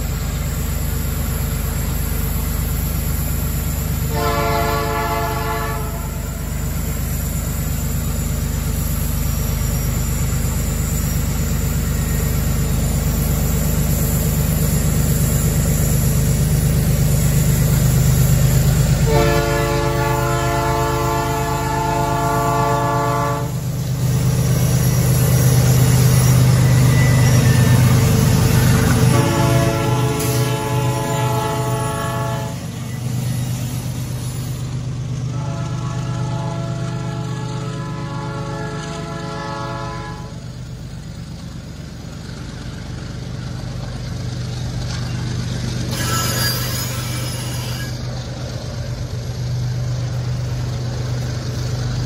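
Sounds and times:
diesel locomotive engines rumbling: 0:00.0 - 0:52.0
locomotive air horn: 0:04.1 - 0:06.6, 0:19.0 - 0:23.8, 0:28.5 - 0:32.8, 0:35.3 - 0:40.5, 0:45.9 - 0:48.1.

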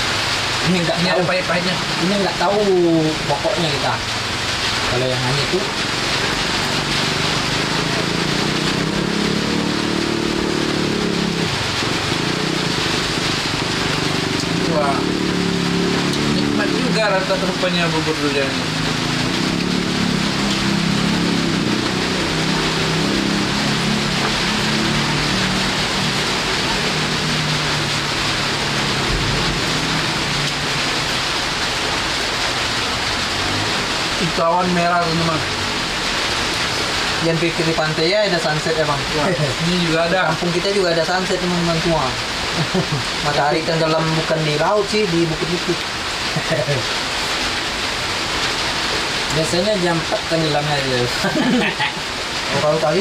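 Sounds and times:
heavy rain falling: 0:00.0 - 0:53.0
low engine-like drone: 0:05.5 - 0:32.0.

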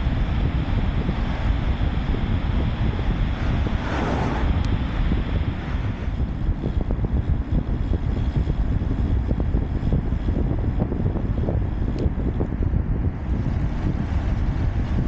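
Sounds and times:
road and tyre noise: 0:00.0 - 0:10.6
wind buffeting microphone: 0:00.0 - 0:15.0.

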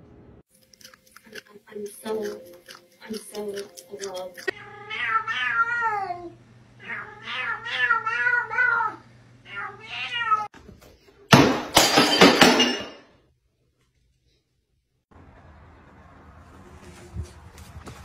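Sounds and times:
cat meowing: 0:04.5 - 0:10.5.

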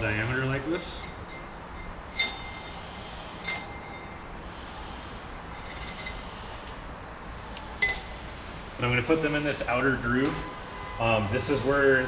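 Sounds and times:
metal clamps clinking: 0:00.8 - 0:02.8, 0:03.4 - 0:04.2, 0:05.6 - 0:06.2, 0:07.8 - 0:08.1.

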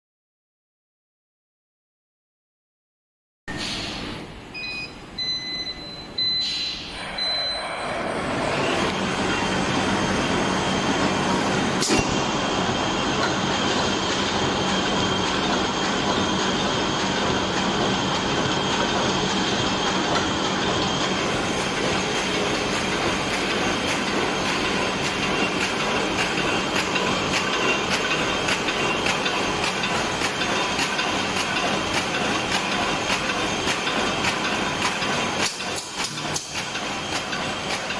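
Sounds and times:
short electronic beeps: 0:04.6 - 0:08.9
machine clattering rapidly: 0:13.2 - 0:37.9.

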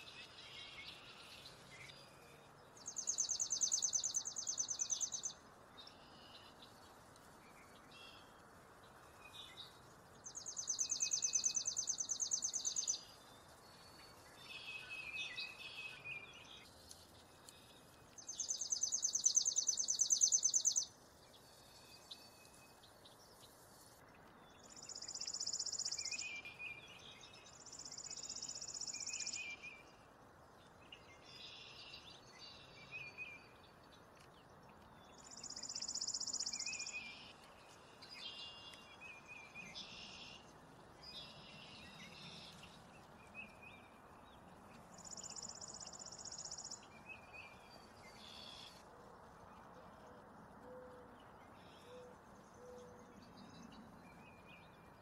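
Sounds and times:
sparrow singing dry trill: 0:02.8 - 0:06.7, 0:09.3 - 0:16.7, 0:17.4 - 0:23.5.

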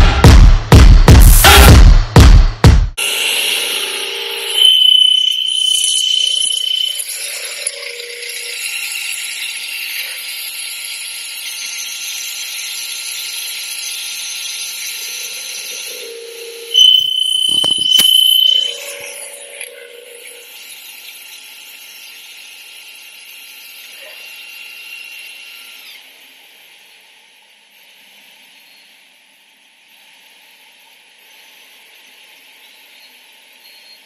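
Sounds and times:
loud high squeal: 0:03.0 - 0:23.8
drilling machine whine: 0:03.0 - 0:28.8.

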